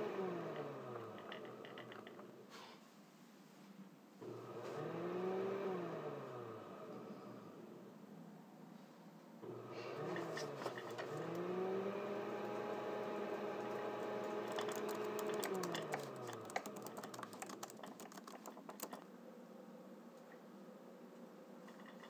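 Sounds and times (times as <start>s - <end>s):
blender motor running: 0.0s - 1.2s, 4.2s - 7.0s, 9.5s - 18.2s
laptop keyboard typing: 13.6s - 19.0s.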